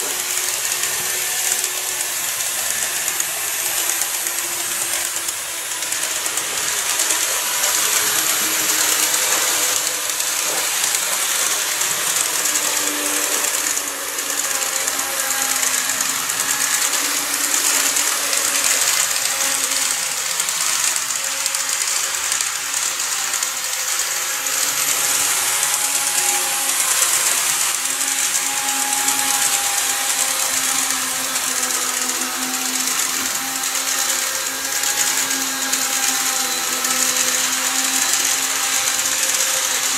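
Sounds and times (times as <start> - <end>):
model train motors whirring: 0.0 - 39.9.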